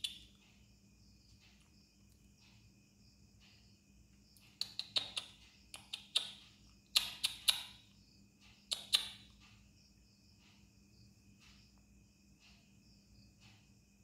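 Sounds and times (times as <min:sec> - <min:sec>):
crickets chirping: 0:00.0 - 0:14.0
sharp clicks: 0:04.4 - 0:09.6.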